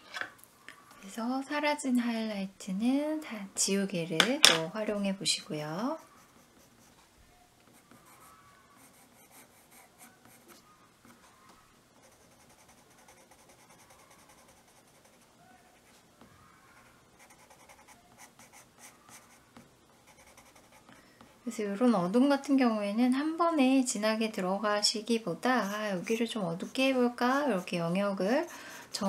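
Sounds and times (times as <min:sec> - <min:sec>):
pencil scratching on paper: 0:06.0 - 0:06.9, 0:12.0 - 0:15.9, 0:17.2 - 0:20.9, 0:25.6 - 0:29.0.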